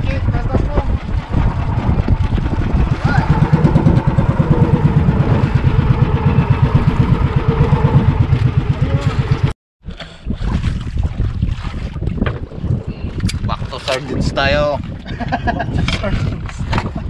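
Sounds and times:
boat engine idling: 0.0s - 9.5s
wind on microphone: 0.0s - 17.0s.

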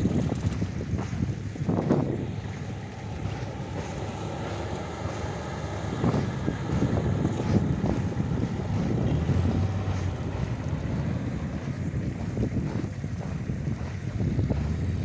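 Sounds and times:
engine rumble: 0.0s - 15.0s
wind buffeting microphone: 0.0s - 15.0s.

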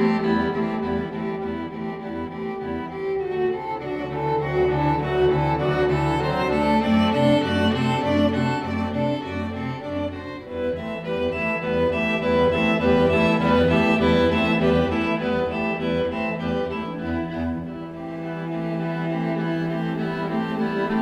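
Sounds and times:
background score music: 0.0s - 21.0s.

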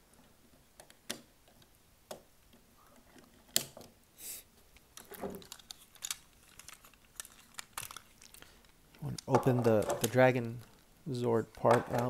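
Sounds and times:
plastic toy parts clicking: 4.7s - 10.8s, 11.5s - 12.0s.

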